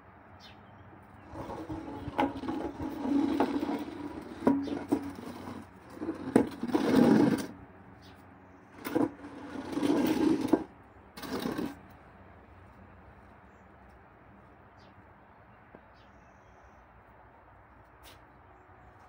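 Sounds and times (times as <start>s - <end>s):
armchairs dragged across paving: 1.1s - 7.7s, 8.7s - 12.0s.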